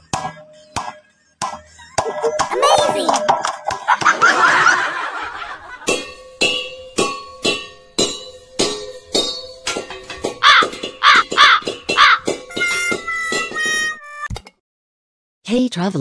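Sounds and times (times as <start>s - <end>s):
people laughing: 3.8s - 5.9s.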